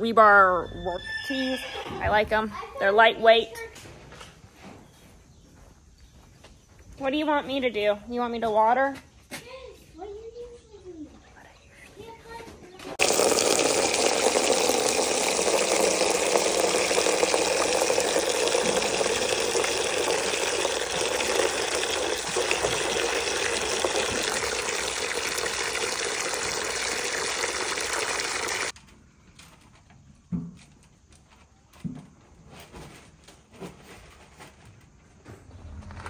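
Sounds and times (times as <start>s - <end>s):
water running hard: 13.0s - 28.8s.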